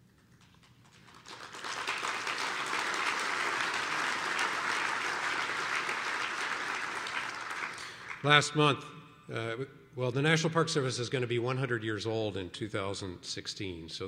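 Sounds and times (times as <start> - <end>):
large audience applauding: 0.1 - 8.4.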